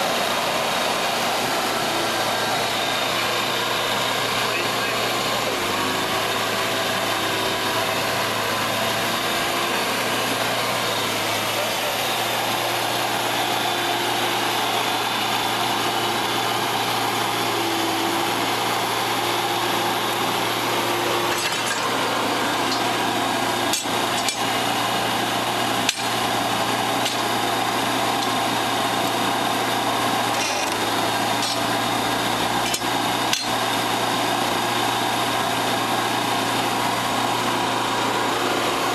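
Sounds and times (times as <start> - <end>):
blower rushing noise: 0.0 - 38.9
sharp knocks of drill steel: 21.3 - 22.0, 22.6 - 23.0, 23.6 - 24.7, 25.8 - 27.4, 30.2 - 31.8, 32.4 - 33.8.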